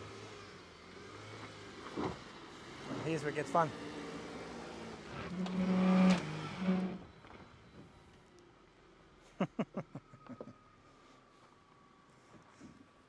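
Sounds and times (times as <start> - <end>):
engine revving hard: 2.9 - 7.0.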